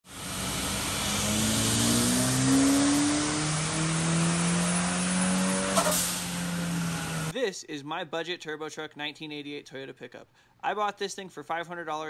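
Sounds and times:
turbocharged engine revving: 0:00.1 - 0:07.3.

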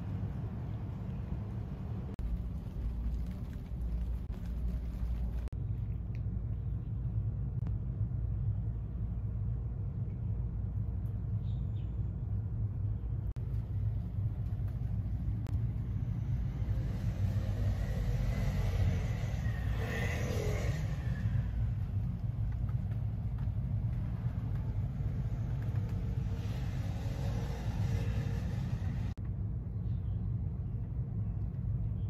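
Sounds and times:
distant road traffic rumble: 0:00.0 - 0:32.0
vehicle passing: 0:13.4 - 0:29.2.

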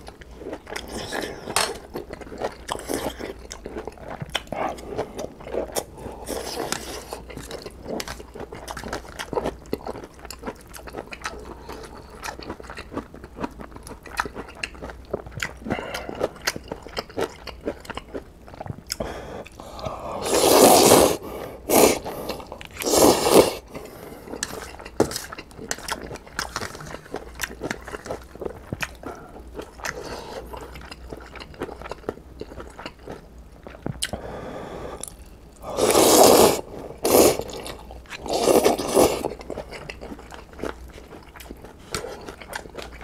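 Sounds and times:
chewing crunchy food: 0:00.0 - 0:19.9, 0:23.6 - 0:34.2, 0:35.0 - 0:43.0
slurping noodles: 0:19.7 - 0:23.7, 0:35.6 - 0:39.4.

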